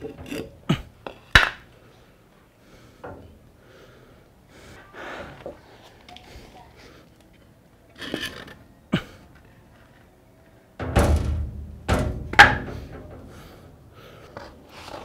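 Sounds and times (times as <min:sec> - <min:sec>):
wooden beams thudding on concrete: 0:00.0 - 0:01.7, 0:10.8 - 0:13.6.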